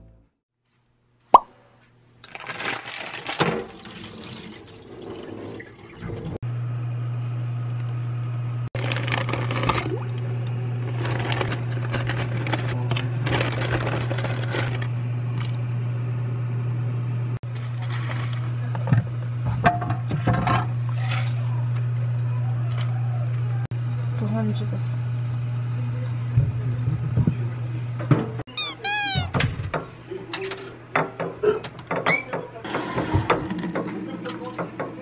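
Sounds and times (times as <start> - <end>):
water running from a tap: 3.6 - 6.4, 33.0 - 34.4.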